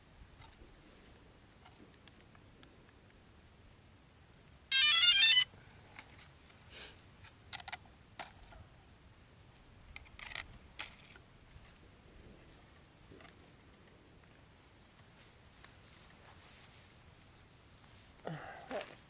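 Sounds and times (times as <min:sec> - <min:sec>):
drone power-on beeping melody: 0:04.7 - 0:05.5
plastic clicks and rattles: 0:07.5 - 0:08.6, 0:09.9 - 0:11.2.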